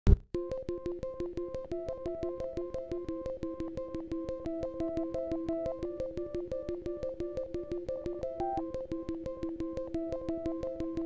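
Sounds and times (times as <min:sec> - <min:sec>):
background music with ticking beat: 0:00.1 - 0:11.0.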